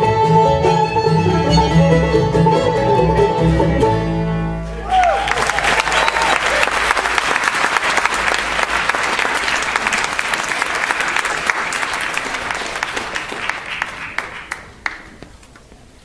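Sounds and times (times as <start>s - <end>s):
audience applauding: 4.8s - 15.7s.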